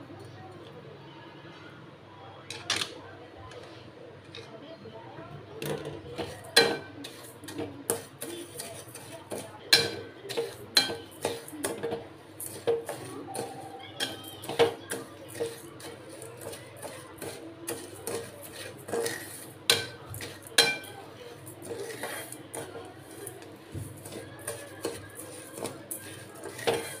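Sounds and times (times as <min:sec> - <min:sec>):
metal spatula scraping pan: 0:05.8 - 0:27.0.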